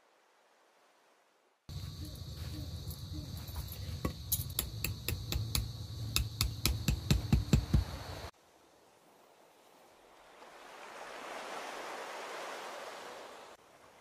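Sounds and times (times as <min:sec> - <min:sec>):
hammer striking tent stake: 0:04.0 - 0:08.0.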